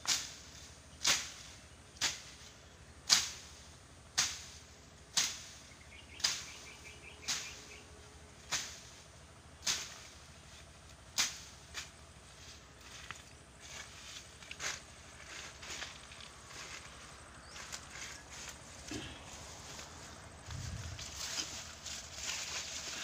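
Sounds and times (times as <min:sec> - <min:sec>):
blade slashing grass: 0:04.2 - 0:05.6, 0:08.4 - 0:09.0, 0:09.6 - 0:10.3, 0:11.1 - 0:13.0.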